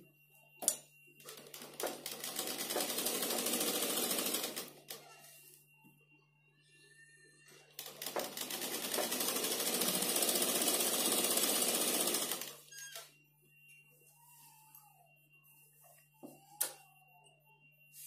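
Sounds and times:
sewing machine stitching: 1.3 - 4.7, 7.8 - 12.6.

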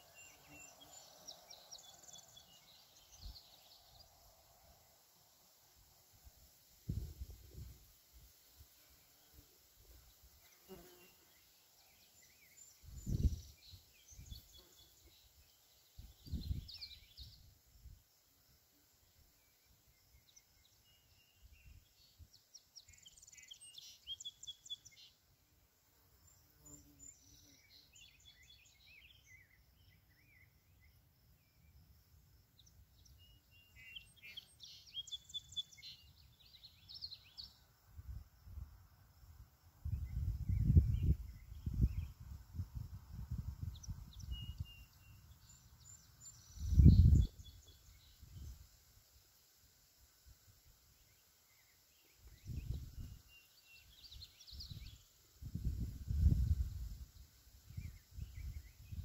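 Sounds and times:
songbird chirping: 0.0 - 49.2, 50.8 - 59.0
wind rumbling on microphone: 6.8 - 7.8, 12.8 - 14.4, 16.0 - 17.5, 39.8 - 44.8, 46.4 - 48.6, 52.2 - 53.2, 54.5 - 59.0.

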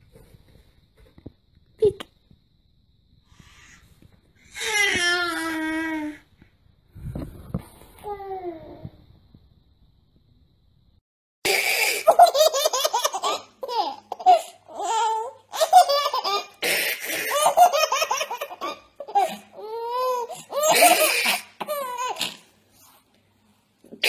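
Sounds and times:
baby breathing: 3.3 - 4.6
baby laughing: 11.5 - 22.5.

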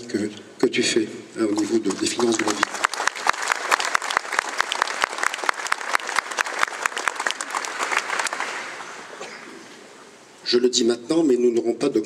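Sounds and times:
crowd applauding: 1.4 - 9.4.

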